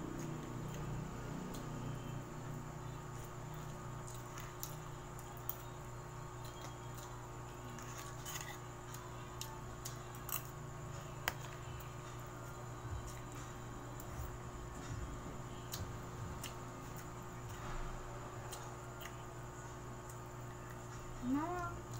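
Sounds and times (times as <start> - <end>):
steady electrical hum: 0.0 - 21.9
soft chewing: 15.5 - 20.9.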